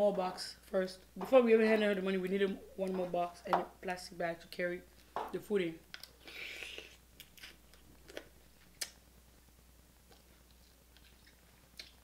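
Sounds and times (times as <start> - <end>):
sucking hiss of eating: 6.2 - 7.0
soft chewing with clicks: 10.0 - 12.0.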